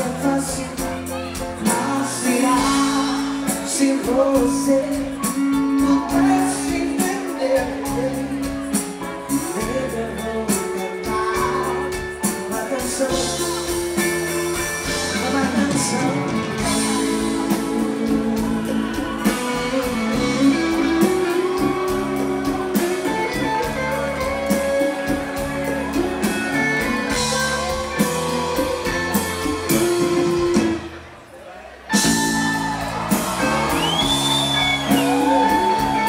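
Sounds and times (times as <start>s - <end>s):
people singing: 0.0s - 8.6s
electric guitar: 0.0s - 31.1s, 31.9s - 36.0s
drums: 0.0s - 36.0s
keyboard: 0.0s - 36.0s.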